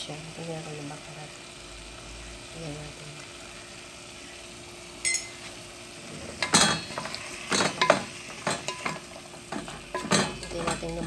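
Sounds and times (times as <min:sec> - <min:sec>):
metal spoon clinking on pot: 0:05.0 - 0:05.4, 0:06.4 - 0:11.0.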